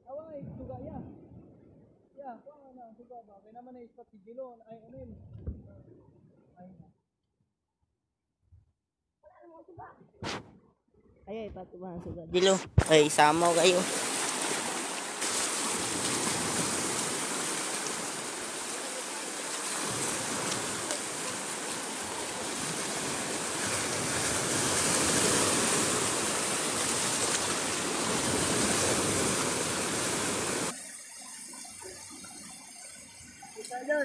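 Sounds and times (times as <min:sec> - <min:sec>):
seawater rushing at shoreline: 0:12.4 - 0:30.8.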